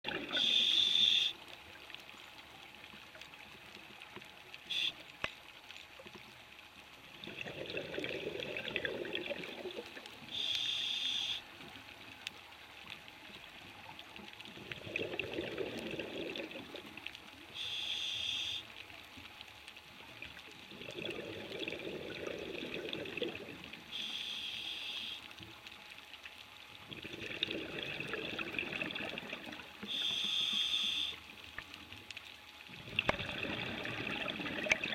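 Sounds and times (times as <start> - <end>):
regulator valve hiss: 0.4 - 1.3, 10.3 - 11.4, 17.6 - 18.7, 29.9 - 31.2
exhaust bubbles rushing: 7.3 - 9.9, 14.8 - 16.7, 20.8 - 23.6, 26.9 - 29.6, 32.8 - 34.9.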